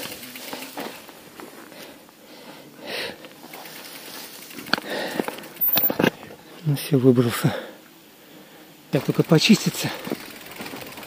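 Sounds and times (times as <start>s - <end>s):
person breathing hard: 1.6s - 3.3s, 4.8s - 5.4s.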